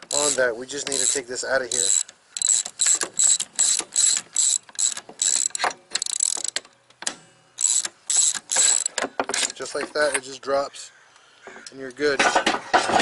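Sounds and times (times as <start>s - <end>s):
socket ratchet clicking: 0.0s - 6.6s, 7.6s - 9.0s.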